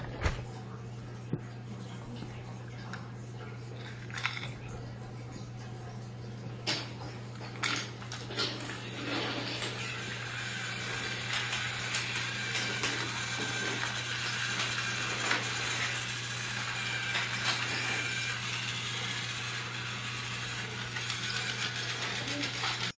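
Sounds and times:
toy train motor humming: 3.8s - 4.4s, 6.7s - 23.0s
clicks of train on plastic track: 7.6s - 22.9s.

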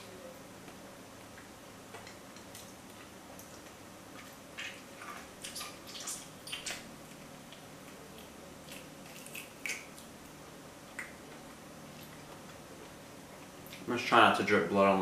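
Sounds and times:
wet chewing and tearing: 2.5s - 12.6s.

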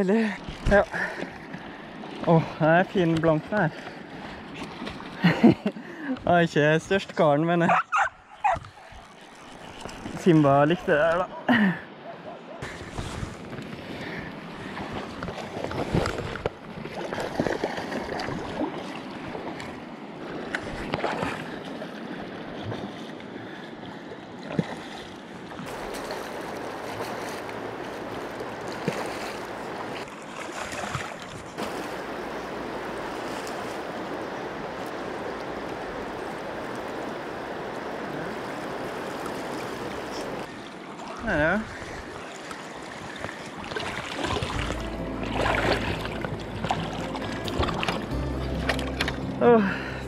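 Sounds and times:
river rushing: 25.0s - 50.0s.

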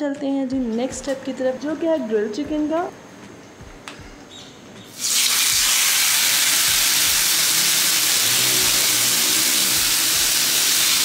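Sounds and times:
chicken sizzling on grill pan: 5.0s - 11.0s.

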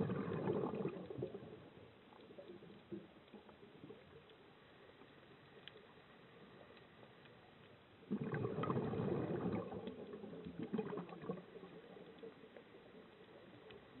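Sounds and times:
underwater breath bubbling: 0.0s - 1.7s, 8.1s - 12.2s.

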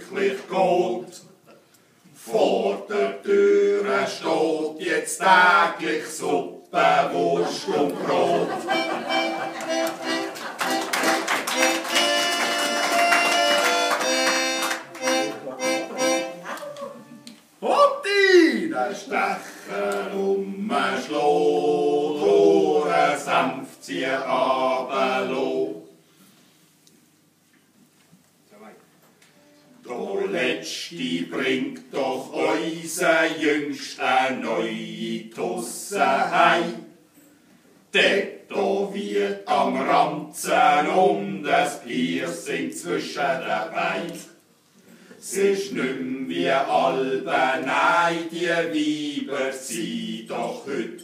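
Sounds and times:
men singing unaccompanied: 0.0s - 1.2s, 2.2s - 8.8s, 19.1s - 25.8s, 29.8s - 36.9s, 37.9s - 44.3s, 45.2s - 51.0s.

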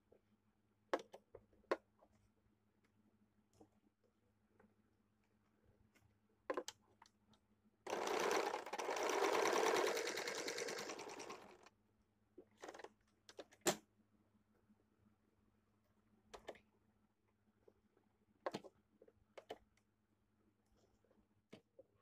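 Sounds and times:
sewing machine stitching: 7.9s - 11.7s.

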